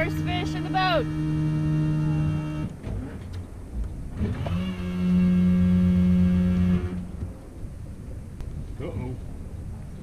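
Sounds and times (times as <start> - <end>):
motor humming: 0.0 - 2.8, 4.2 - 7.2.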